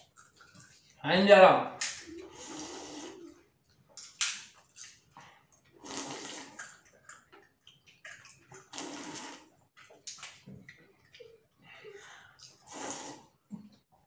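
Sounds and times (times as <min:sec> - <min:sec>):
slurping water from bowl: 0:02.0 - 0:03.5, 0:04.8 - 0:09.6, 0:12.4 - 0:13.5.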